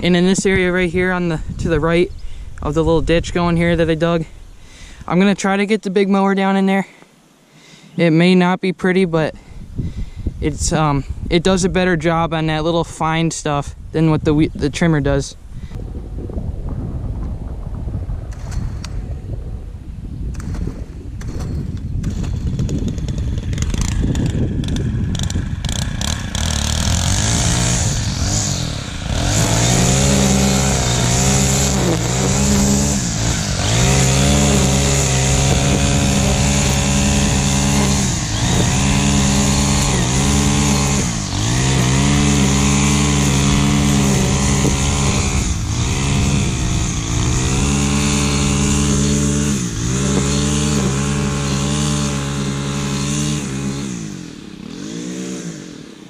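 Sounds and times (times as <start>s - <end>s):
noisy clatter: 15.8s - 55.6s
small engine running: 21.2s - 56.0s.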